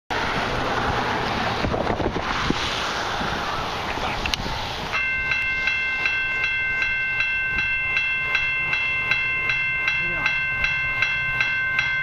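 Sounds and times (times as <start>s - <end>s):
wind noise on microphone: 0.2s - 9.7s
level crossing warning bell: 4.9s - 12.0s.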